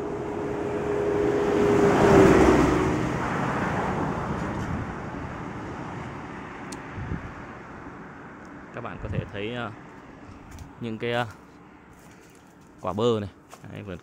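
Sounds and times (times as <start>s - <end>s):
car passing by: 0.0s - 8.1s.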